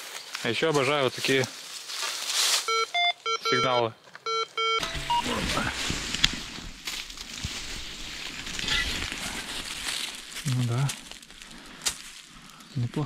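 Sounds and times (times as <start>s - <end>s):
metal detector beeps: 2.7s - 5.6s.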